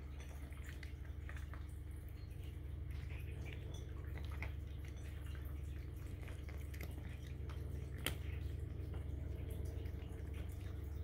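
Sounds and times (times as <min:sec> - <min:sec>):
cat crunching dry kibble: 0:00.0 - 0:11.0
steady low hum: 0:00.0 - 0:11.0.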